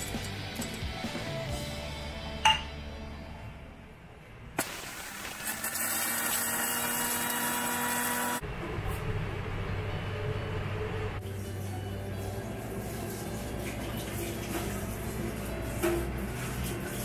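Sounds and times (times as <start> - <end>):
mixer grinder motor whir: 5.0 - 8.4.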